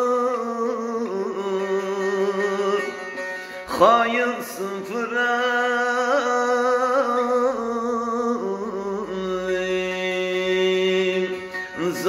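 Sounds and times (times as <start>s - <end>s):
man singing melisma: 0.0s - 12.0s.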